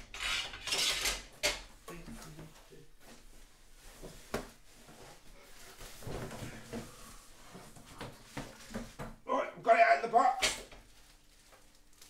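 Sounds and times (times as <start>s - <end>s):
packaging rustling: 10.7s - 12.0s.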